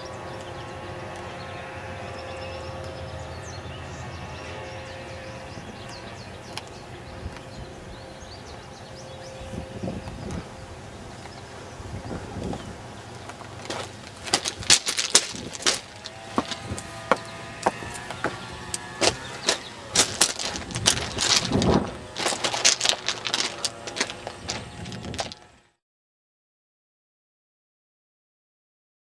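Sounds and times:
footsteps crunching on gravel: 13.3 - 25.5.

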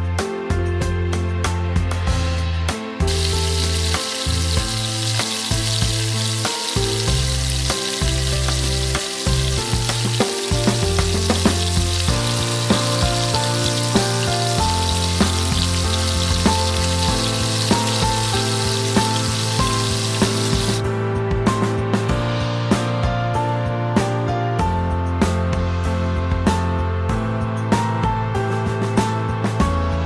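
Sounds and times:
background music: 0.0 - 30.0
chicken sizzling in a frying pan: 3.1 - 20.8.

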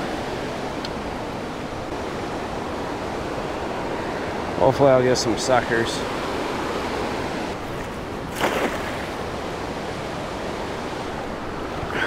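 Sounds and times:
river water rushing: 0.0 - 12.0
cast net splashing on water: 8.3 - 9.2.

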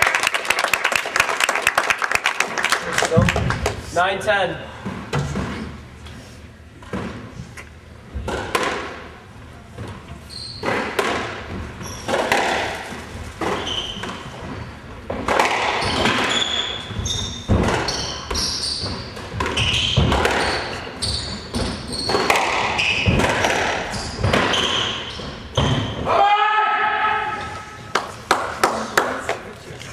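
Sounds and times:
squash ball hitting rackets: 8.2 - 9.2, 10.6 - 26.1
shoes squeaking on floor: 9.8 - 11.0, 11.6 - 15.1, 15.7 - 26.1.

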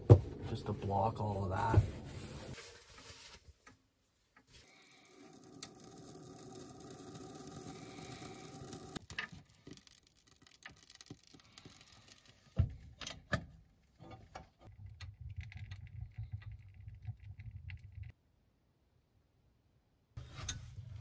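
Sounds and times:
kindling crackling in stove: 4.6 - 18.2, 20.2 - 21.0.

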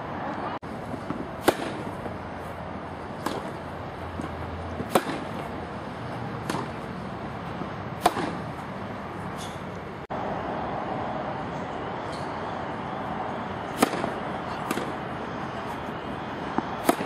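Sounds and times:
tennis racket hitting ball: 1.0 - 2.1, 3.2 - 8.6, 13.8 - 14.9, 16.8 - 17.0.

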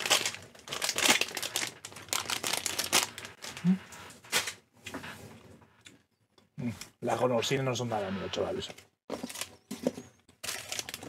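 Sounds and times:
plastic sweet bag crinkling: 0.0 - 4.5, 9.1 - 11.0.

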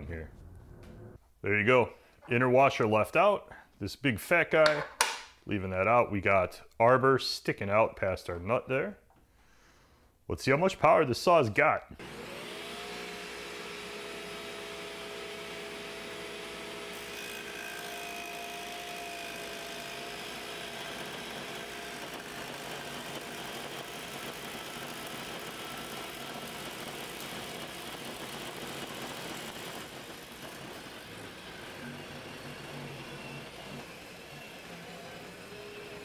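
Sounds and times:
table saw cutting wood: 12.0 - 36.0.

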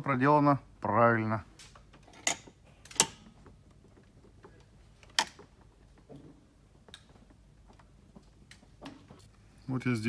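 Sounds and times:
throttle linkage clicks: 2.0 - 3.4.

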